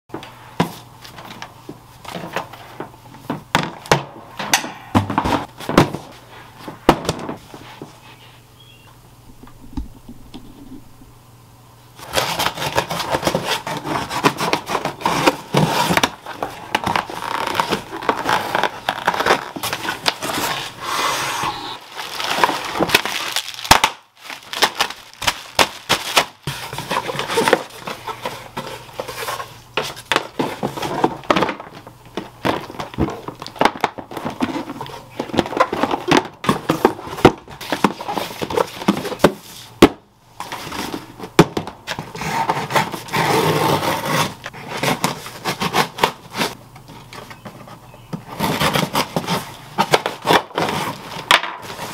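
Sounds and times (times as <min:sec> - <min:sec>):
cardboard rustling and scraping: 0:05.0 - 0:08.4, 0:12.0 - 0:39.8, 0:40.4 - 0:51.9
knife scraping through packing tape: 0:12.0 - 0:28.2, 0:42.1 - 0:46.6, 0:48.3 - 0:51.9.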